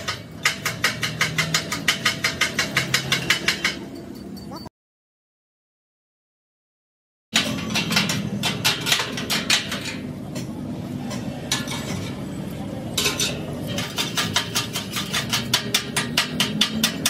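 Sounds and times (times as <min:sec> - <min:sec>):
scraping on steel frame: 0:11.0 - 0:17.0.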